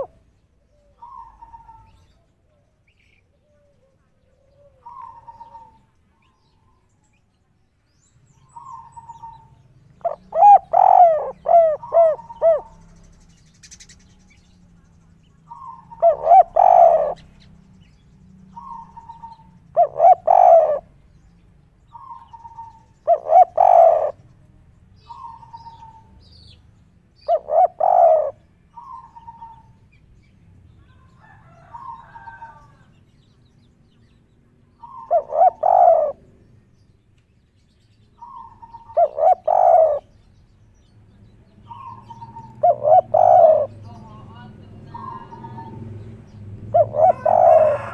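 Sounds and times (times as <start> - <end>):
dove cooing: 0.0 - 2.7, 3.3 - 6.3, 8.4 - 13.0, 15.5 - 17.4, 18.5 - 20.9, 21.9 - 24.2, 25.0 - 26.2, 27.2 - 29.8, 30.9 - 32.9, 34.8 - 36.4, 38.2 - 40.2, 41.6 - 45.8, 46.7 - 47.9.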